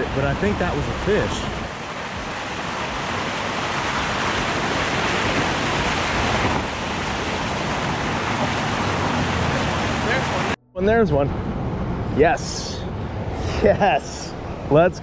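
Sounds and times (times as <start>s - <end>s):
water rushing down spillway: 0.0s - 10.6s.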